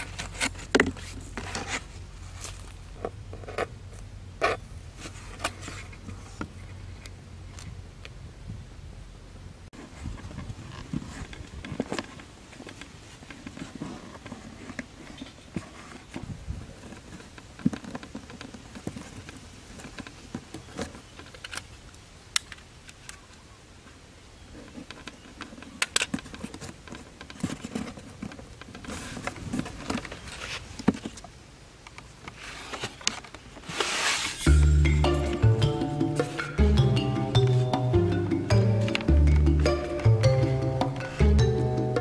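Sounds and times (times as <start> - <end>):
cardboard rustling and scraping: 0.0 - 6.9, 9.8 - 21.7, 23.9 - 31.4, 32.2 - 35.3.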